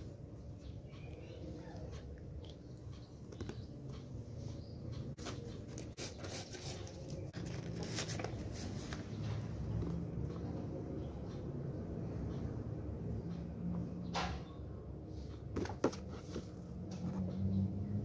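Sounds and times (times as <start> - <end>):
photocards rustling and tapping: 15.4 - 17.1.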